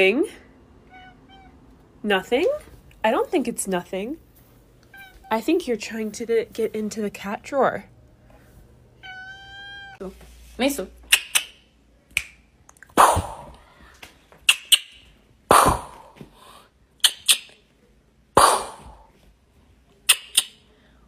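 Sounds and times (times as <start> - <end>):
person making mouth gunshot noises: 13.0 - 13.6, 15.5 - 16.3, 18.4 - 19.1.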